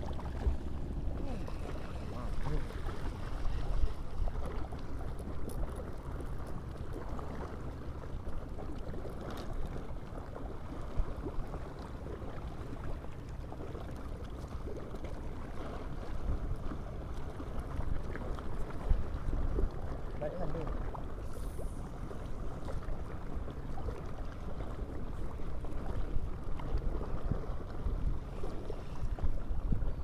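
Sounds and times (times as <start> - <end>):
wind buffeting microphone: 21.8 - 30.0.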